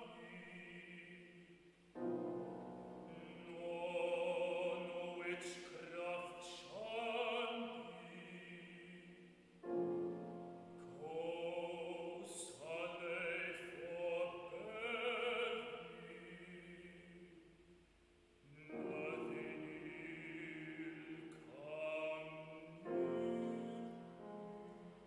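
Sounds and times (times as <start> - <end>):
grand piano accompaniment: 0.0 - 17.4, 18.3 - 25.0
baritone singing: 3.1 - 9.3, 10.8 - 17.2, 18.5 - 25.0.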